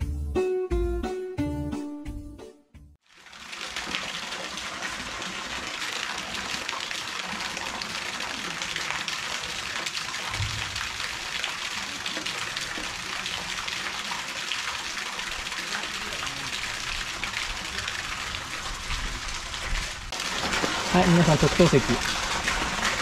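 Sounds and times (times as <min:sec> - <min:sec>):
running water: 0:03.0 - 0:23.0
low thump: 0:10.3 - 0:11.1.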